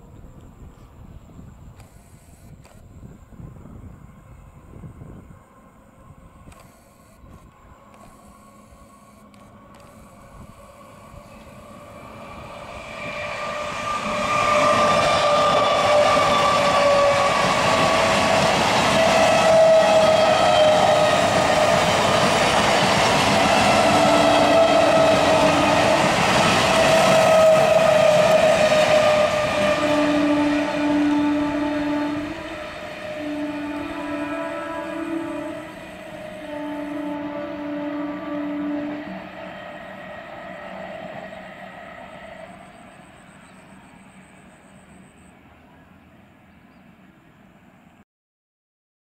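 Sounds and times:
train rumble and rail clatter: 0:02.6 - 0:06.7, 0:07.3 - 0:47.9
train whine falling in pitch: 0:03.7 - 0:45.9
train horn blasts: 0:07.5 - 0:45.2.

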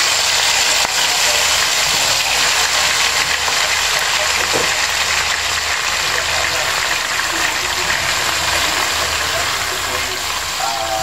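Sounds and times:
beef sizzling in hot oil: 0:00.0 - 0:11.0.

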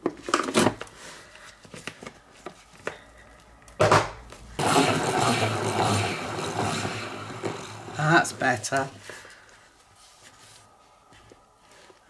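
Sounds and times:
salad spinner whirring: 0:04.6 - 0:08.4.

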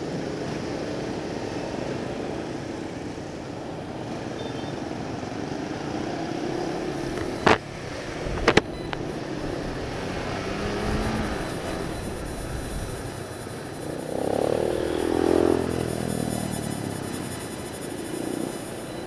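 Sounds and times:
road and wind noise: 0:00.0 - 0:19.0
motorcycle engine accelerating: 0:05.0 - 0:19.0.

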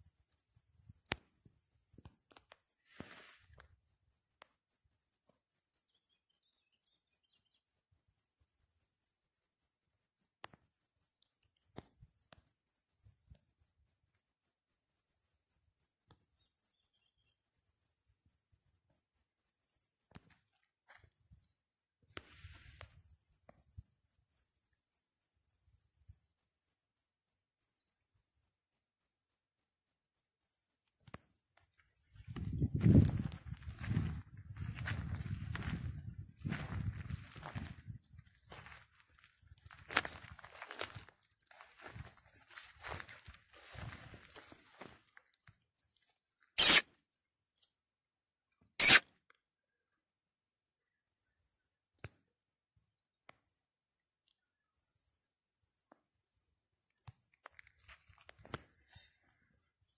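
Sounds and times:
insect chirping: 0:00.0 - 0:59.9
rustling noise: 0:02.8 - 0:03.6, 0:22.2 - 0:22.9.

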